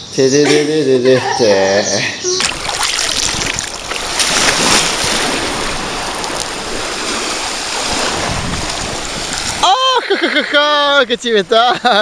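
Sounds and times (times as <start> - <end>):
wind buffeting microphone: 2.4 - 11.2
small waves washing onto beach: 2.4 - 12.0.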